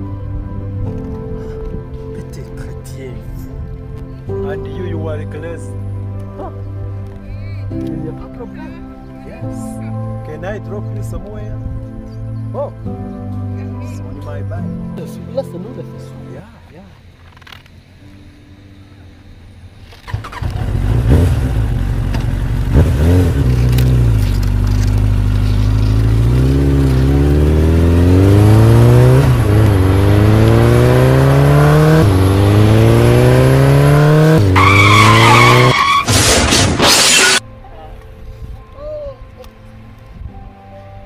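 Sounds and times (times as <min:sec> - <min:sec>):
engine revving through gear changes: 0:20.0 - 0:37.4
tyre screech: 0:34.5 - 0:37.4.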